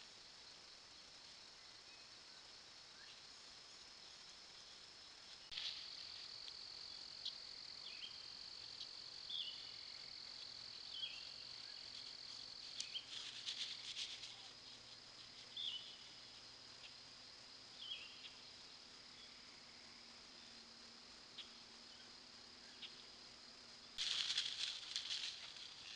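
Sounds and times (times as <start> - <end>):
insect high-pitched trill: 0.0 - 25.9
short insect chirp: 0.0 - 25.9
faint clicks: 12.6 - 14.4.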